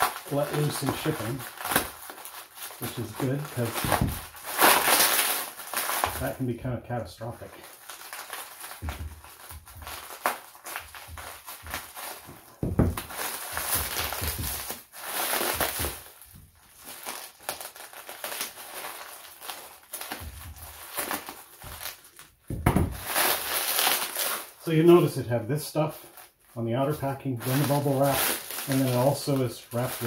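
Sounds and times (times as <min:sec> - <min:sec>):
plastic wrap crinkling: 0:00.0 - 0:30.0.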